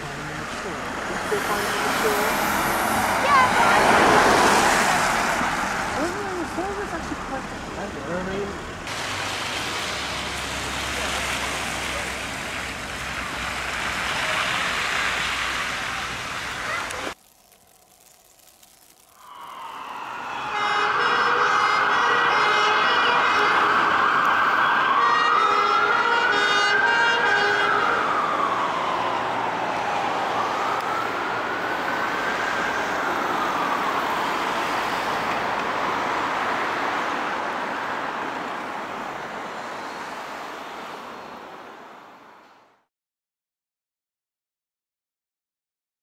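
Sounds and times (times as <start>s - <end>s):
road noise: 0.0s - 42.9s
emergency vehicle siren: 0.1s - 8.9s, 19.2s - 42.4s.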